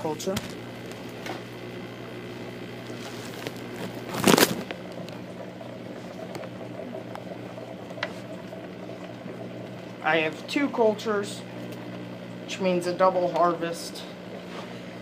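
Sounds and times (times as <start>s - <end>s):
air pump humming: 0.0s - 15.0s
air bubbling through water: 2.2s - 10.5s.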